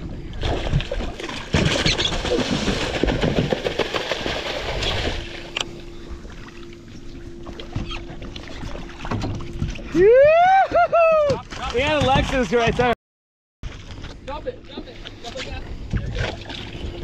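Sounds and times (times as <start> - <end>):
steady low hum: 0.0 - 13.0, 13.6 - 17.0
water lapping: 0.3 - 13.0.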